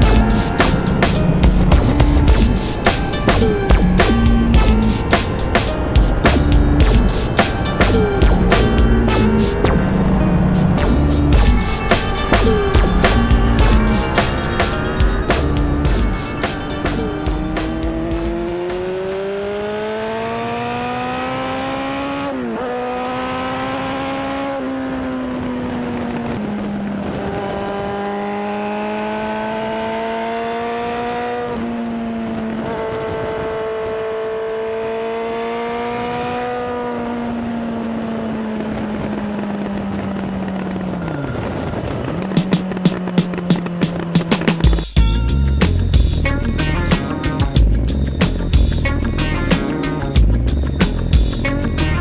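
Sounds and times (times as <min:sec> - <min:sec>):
motorcycle engine revving: 0:00.0 - 0:52.0
wind noise: 0:30.8 - 0:34.1, 0:35.7 - 0:52.0.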